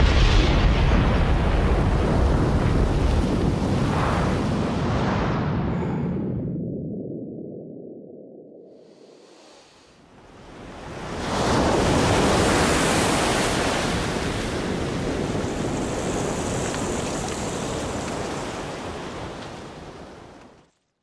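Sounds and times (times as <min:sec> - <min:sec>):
ocean wave breaking: 0:08.7 - 0:20.6.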